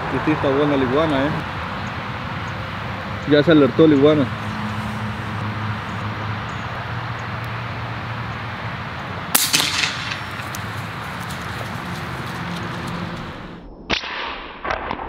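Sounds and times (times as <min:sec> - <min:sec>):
air rifle shot: 0:09.3 - 0:10.6, 0:13.9 - 0:15.0.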